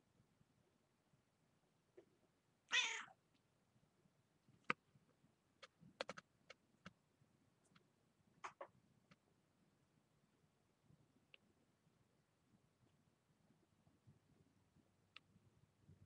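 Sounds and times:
cat meowing: 0:02.7 - 0:03.2.

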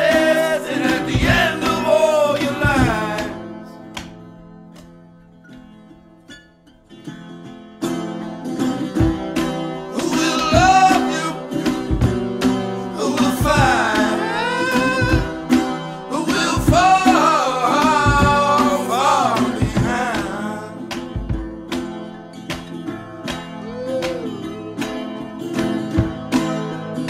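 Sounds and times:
person singing: 0:00.0 - 0:03.8, 0:09.9 - 0:11.6, 0:12.8 - 0:21.0, 0:23.6 - 0:25.6
song with steady beat: 0:00.0 - 0:04.9, 0:08.9 - 0:26.8.

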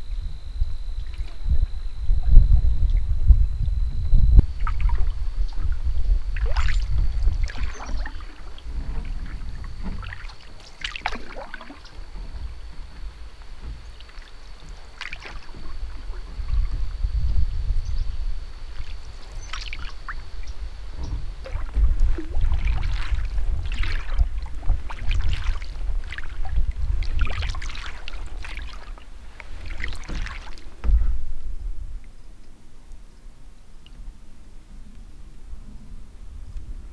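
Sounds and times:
low rumble: 0:00.0 - 0:36.9
paddle splashing in water: 0:01.0 - 0:01.6, 0:04.5 - 0:16.9, 0:18.6 - 0:32.1
water dripping: 0:06.4 - 0:08.6.

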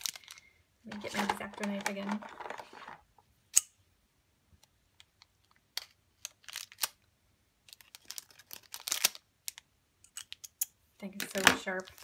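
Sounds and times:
plastic packaging clicks: 0:07.7 - 0:12.0.

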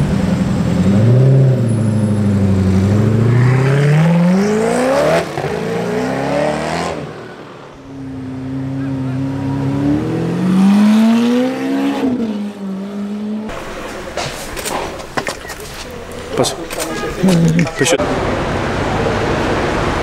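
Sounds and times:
car engine accelerating hard: 0:00.0 - 0:14.1.

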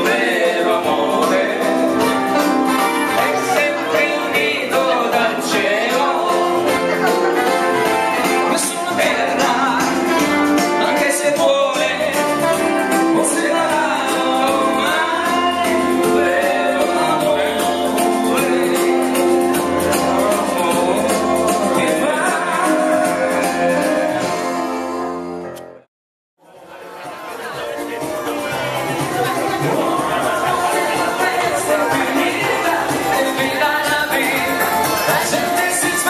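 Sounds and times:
person singing: 0:00.0 - 0:24.6, 0:28.1 - 0:36.0
live dance music with keyboard: 0:00.0 - 0:25.8, 0:26.5 - 0:36.0.

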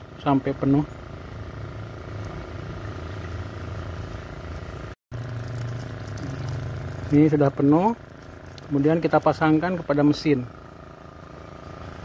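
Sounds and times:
low motor hum: 0:00.0 - 0:12.0
water running from a hose: 0:04.1 - 0:10.1.

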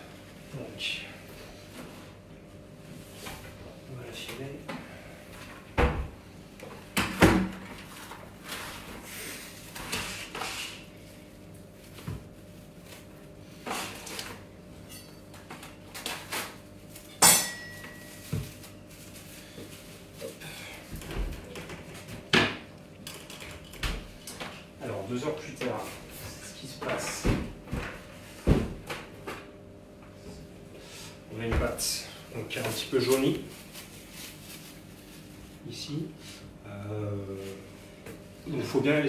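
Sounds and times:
plastic wrap rustling and crinkling: 0:18.0 - 0:20.9, 0:32.4 - 0:36.0.

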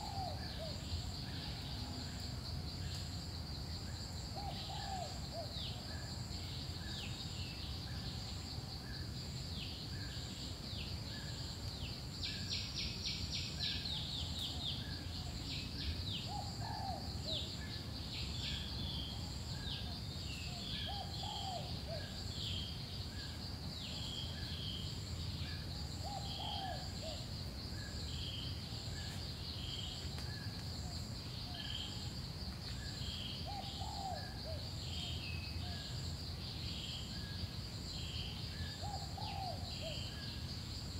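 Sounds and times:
insect chirping in pulses: 0:00.0 - 0:40.9.

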